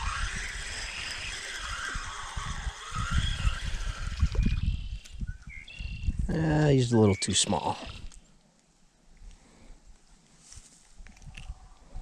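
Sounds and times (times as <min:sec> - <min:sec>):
fishing reel whirring: 0:00.0 - 0:06.0
wind buffeting microphone: 0:00.0 - 0:06.7.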